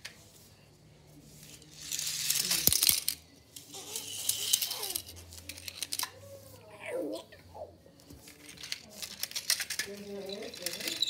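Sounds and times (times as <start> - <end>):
toy cars rolling on tiled floor: 1.0 - 6.7, 8.0 - 11.0.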